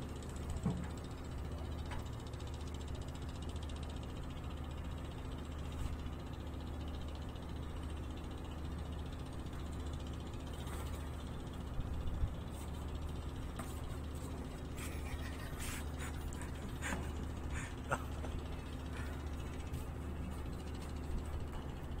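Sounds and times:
engine humming: 10.6s - 22.0s.

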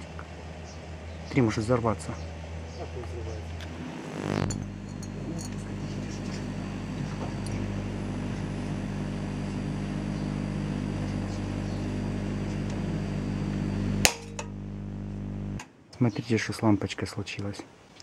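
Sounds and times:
transformer humming: 1.3s - 15.6s.

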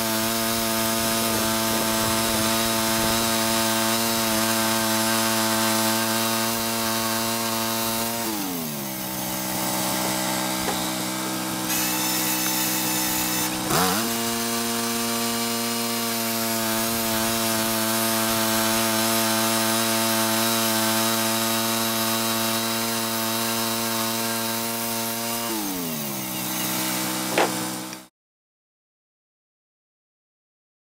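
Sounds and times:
gas engine running: 0.0s - 19.6s
bandsaw blade sawing log: 0.0s - 28.1s.

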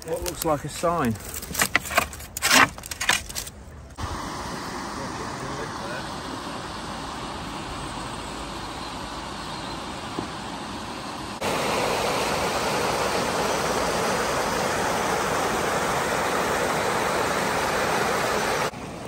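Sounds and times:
river water rushing over weir: 10.7s - 19.0s.

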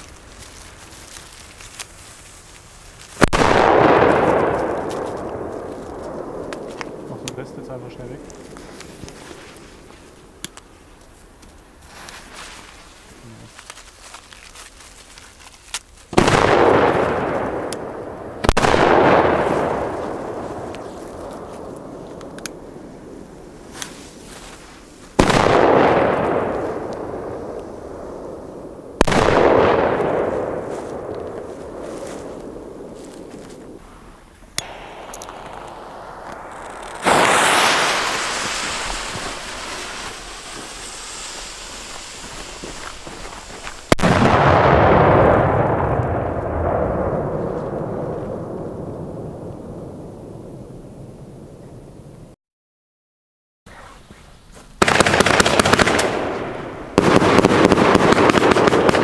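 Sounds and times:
firecracker bangs: 3.2s - 9.9s, 16.1s - 22.9s, 23.6s - 33.8s, 34.6s - 50.1s, 54.8s - 59.0s
rolling echo: 3.2s - 10.4s, 24.8s - 33.8s, 34.5s - 52.3s
burning fuse hissing: 35.2s - 44.0s.

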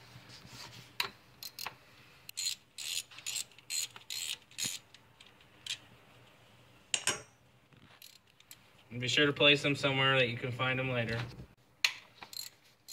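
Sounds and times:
socket ratchet clicking: 2.3s - 5.0s, 12.3s - 12.9s.

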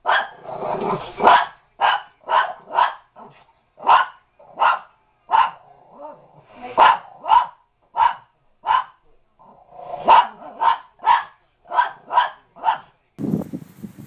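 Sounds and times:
small dog barking: 0.0s - 0.5s, 1.2s - 9.0s, 10.0s - 12.9s.

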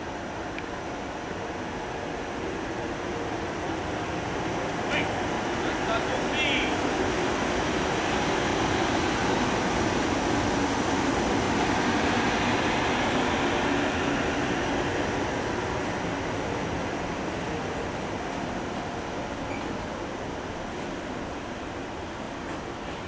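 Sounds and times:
electric locomotive rumbling past: 1.4s - 23.0s.

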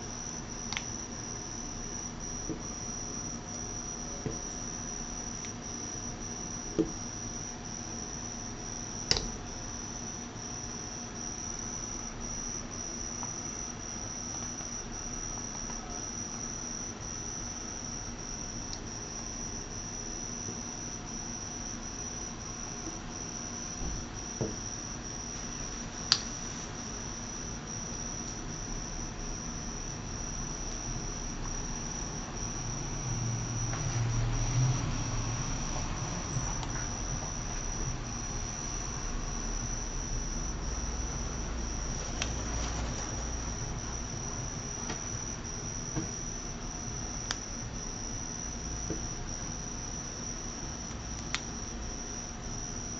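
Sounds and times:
crickets trilling: 0.0s - 52.9s.

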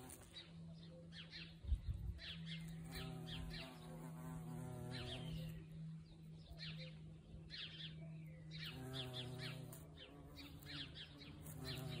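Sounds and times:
bee buzzing: 0.0s - 0.6s, 2.5s - 5.8s, 8.6s - 12.0s
birds chirping: 0.0s - 12.0s.

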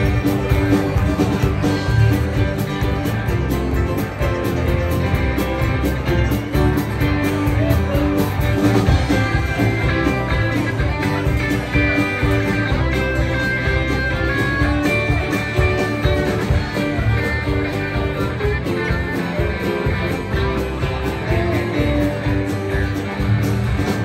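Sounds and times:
acoustic guitar: 0.0s - 24.0s
electric guitar: 0.0s - 24.0s
steady drum beat: 0.0s - 24.0s.

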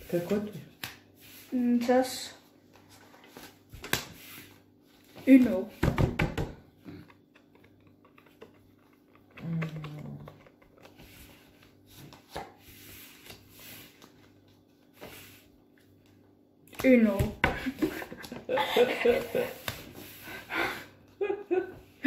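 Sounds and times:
playing cards clicking and rustling: 2.7s - 4.5s, 7.0s - 16.8s.

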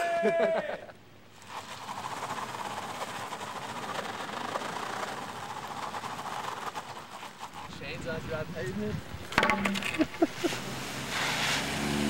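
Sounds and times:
snow chains rattling on wet pavement: 1.3s - 8.4s.

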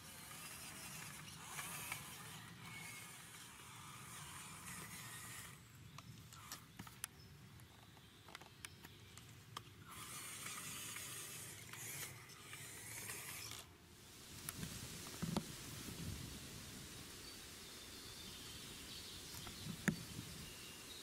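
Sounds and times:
small electric motor and gearbox: 0.0s - 13.8s.

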